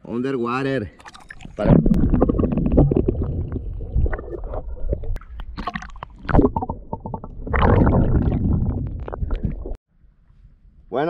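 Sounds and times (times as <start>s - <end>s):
water sloshing underwater: 1.0s - 9.8s
water splashing: 1.0s - 9.8s.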